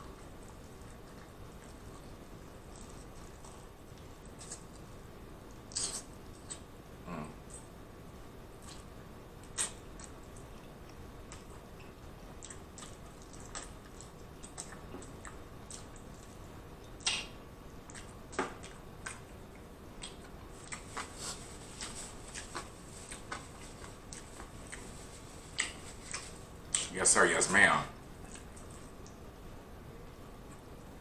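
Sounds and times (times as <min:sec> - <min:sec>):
chewing: 0:00.0 - 0:06.7, 0:08.6 - 0:26.9, 0:28.1 - 0:29.2
lip smacks: 0:05.7 - 0:06.7, 0:08.6 - 0:24.9, 0:25.5 - 0:27.0, 0:28.2 - 0:29.2
fingers being licked: 0:08.7 - 0:21.1.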